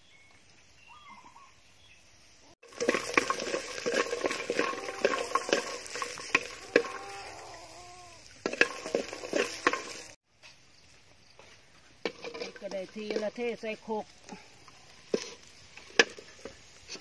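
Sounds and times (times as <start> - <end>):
light sizzle: 0.0 - 17.0
wooden spatula scraping a metal pot: 2.6 - 10.2, 12.0 - 13.8, 15.0 - 17.0.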